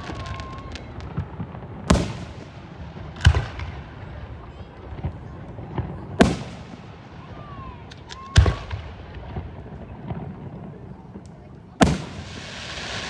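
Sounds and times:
firework bangs: 0.0s - 13.0s
firework pops and crackles: 0.0s - 13.0s.

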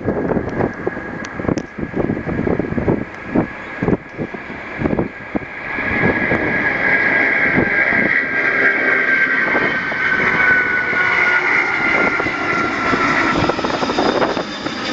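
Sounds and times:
jet engines at takeoff: 0.0s - 14.9s.

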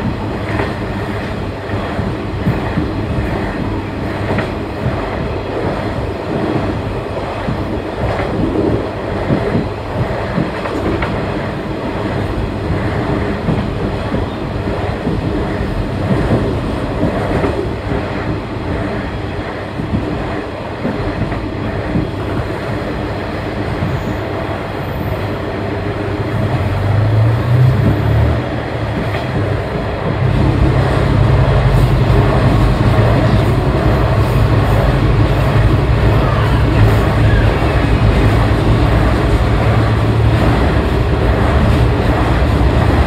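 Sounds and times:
diesel railcar running on track: 0.0s - 43.0s.

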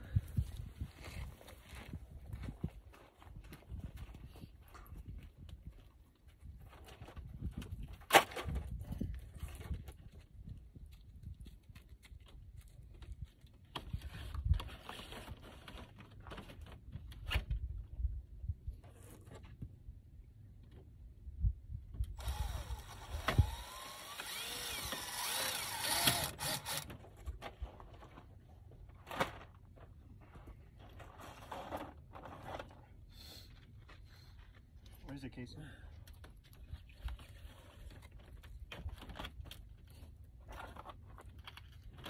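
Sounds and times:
cordless drill driving screws: 22.2s - 26.9s.

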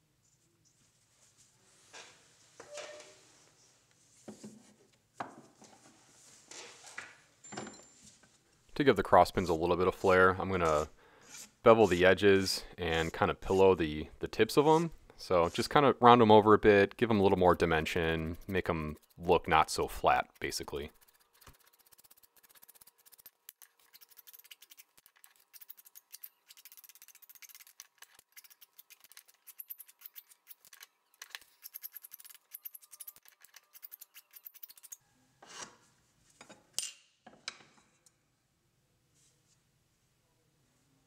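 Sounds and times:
loud file scrapes: 9.0s - 13.9s, 14.5s - 15.8s
hand file rasping on wood: 9.2s - 15.8s, 17.2s - 24.8s.

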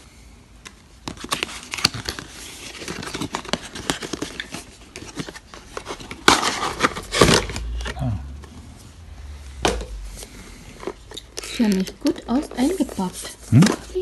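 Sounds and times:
packaging clicks and rustles: 0.6s - 8.0s, 9.7s - 14.0s
plastic packaging crinkling: 1.0s - 8.0s.

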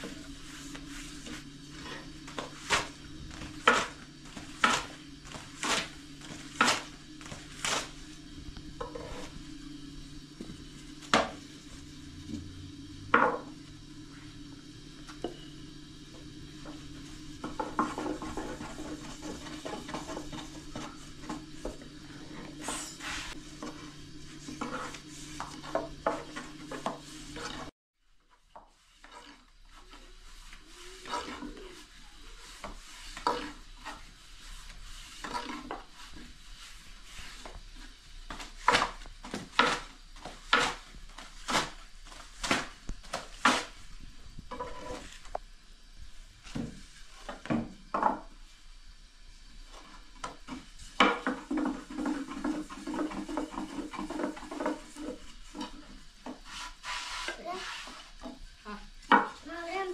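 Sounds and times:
steady low hum: 0.0s - 27.7s
rolling pin rolling over dough: 0.0s - 45.4s, 49.4s - 59.9s.

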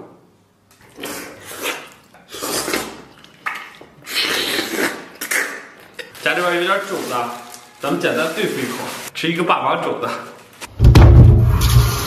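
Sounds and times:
person biting and chewing: 0.8s - 6.2s.

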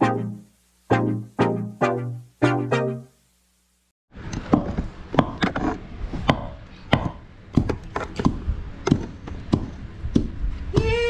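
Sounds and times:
pestle pounding in a mortar: 6.3s - 10.9s.

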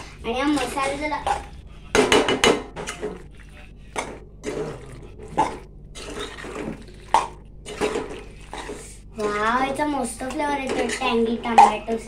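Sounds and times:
spoon stirring pasta in a pan: 10.2s - 12.0s.

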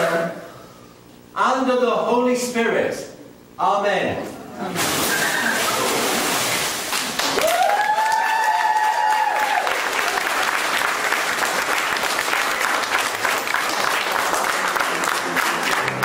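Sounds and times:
crowd clapping: 6.8s - 16.0s
rising whoop of cheering: 7.4s - 10.2s.

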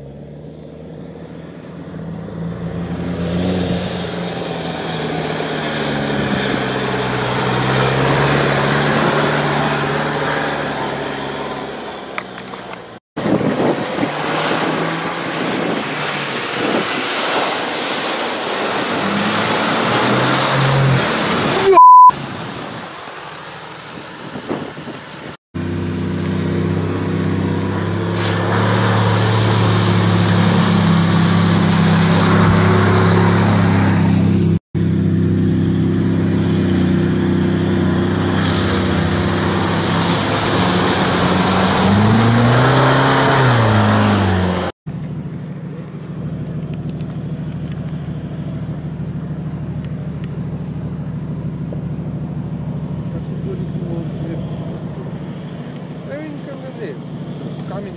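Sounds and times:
engine revving through mud: 0.0s - 57.9s
off-road engines under load: 0.0s - 57.9s
short loud beep: 21.6s - 22.2s.

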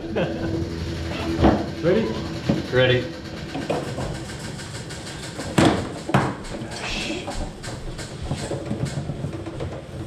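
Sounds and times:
foosball rods clattering: 0.4s - 10.0s
foosball sharp clacks: 3.4s - 10.0s.

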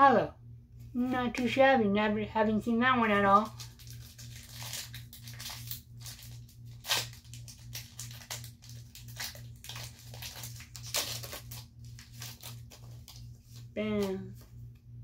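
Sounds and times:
foil wrapper crinkling and tearing: 3.2s - 14.1s
cards being handled: 3.4s - 14.6s.

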